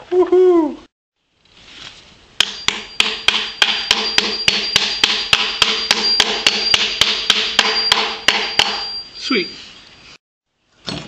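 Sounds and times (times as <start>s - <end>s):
hammer striking metal: 2.4s - 9.1s
metal ringing: 2.4s - 9.6s.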